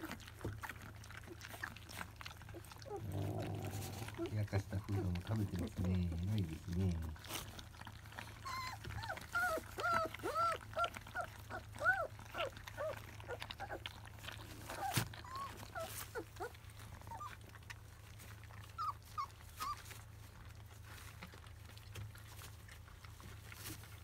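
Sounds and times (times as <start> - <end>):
puppies whimpering squeaks: 8.0 - 17.6, 18.6 - 20.2.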